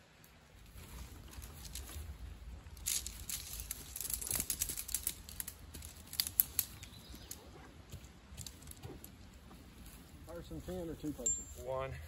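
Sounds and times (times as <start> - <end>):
tent pole sections clicking: 0.2 - 9.5.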